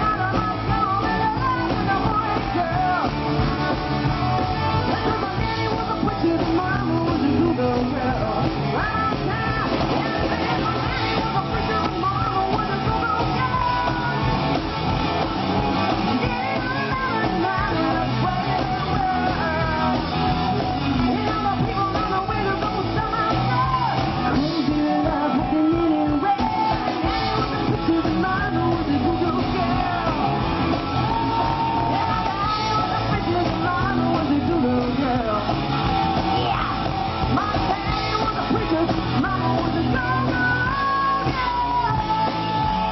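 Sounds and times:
drum kit: 0.0s - 42.9s
electric guitar: 0.0s - 42.9s
person singing: 0.0s - 42.9s.

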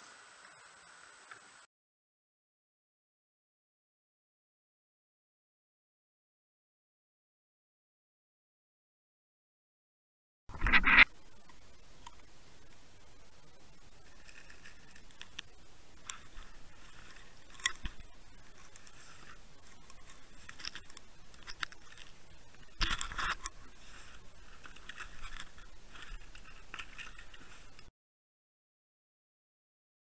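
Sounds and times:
faint water noise: 10.5s - 27.9s
muffled underwater clicks and scrapes: 10.5s - 27.9s.

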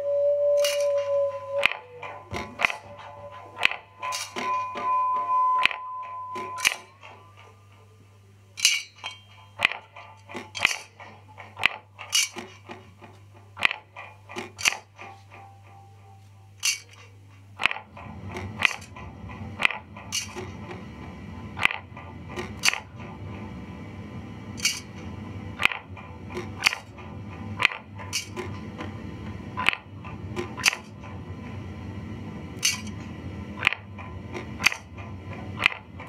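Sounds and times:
low grainy drone: 0.0s - 13.6s, 14.2s - 36.0s
sharp electronic clicks: 0.6s - 7.8s.

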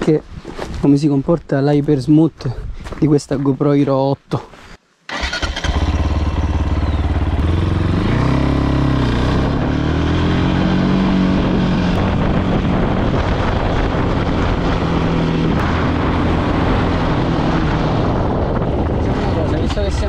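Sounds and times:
wind noise on microphone: 0.0s - 3.3s, 5.1s - 20.0s
motorcycle engine revving: 5.1s - 20.0s.

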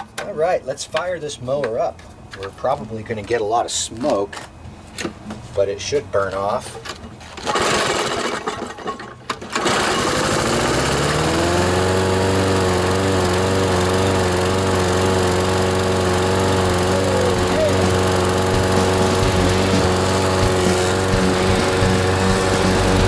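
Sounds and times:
lawn mower engine starting: 7.3s - 23.0s.

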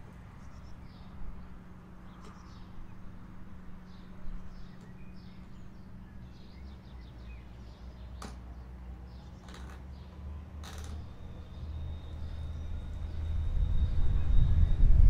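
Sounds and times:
birds chirping: 0.2s - 14.8s
low rumble: 11.0s - 15.0s.

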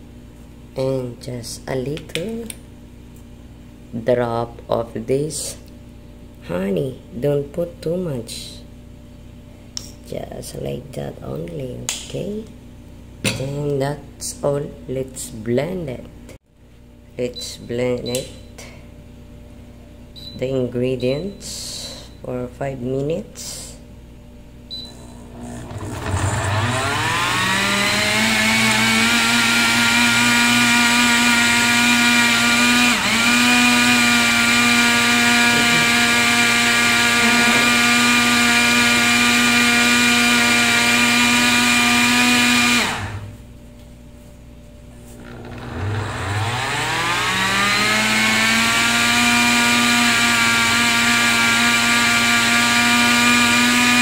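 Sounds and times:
blender motor whining: 24.8s - 43.3s, 45.1s - 54.0s.

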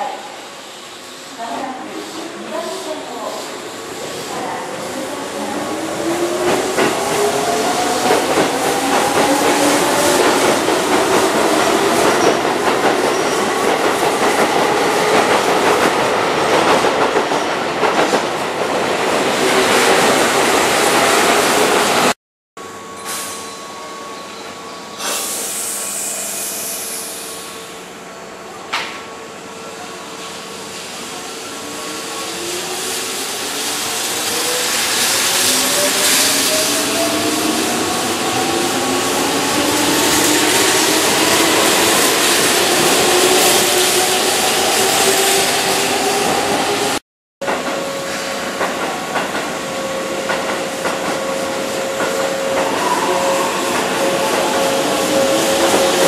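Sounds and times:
air hiss: 25.0s - 27.6s.

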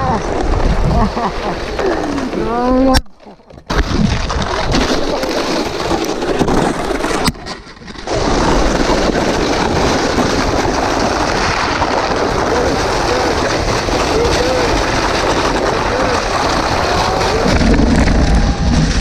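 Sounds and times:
snowboards scraping icy snow: 0.0s - 2.9s, 3.7s - 19.0s
wind on microphone: 0.0s - 3.0s, 8.0s - 19.0s.

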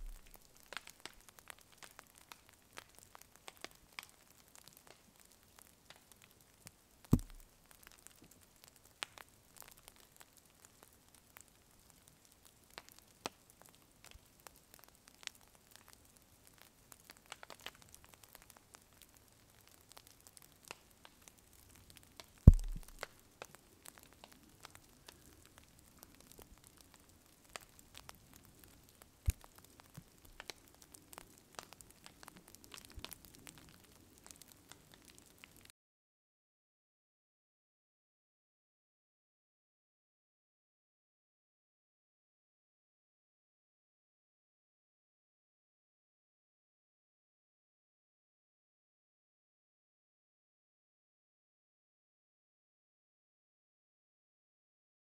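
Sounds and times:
heavy dull thumps: 0.0s - 0.3s, 7.2s - 7.4s, 22.5s - 23.0s
campfire crackling: 0.0s - 35.7s.

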